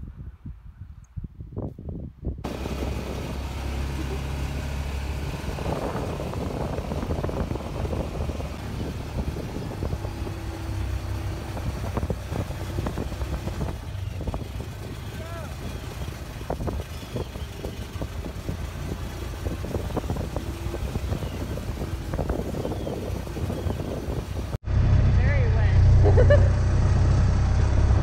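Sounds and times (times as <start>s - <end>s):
vehicle body rattling over bumps: 2.4s - 24.6s
vehicle engine drone: 2.4s - 28.0s.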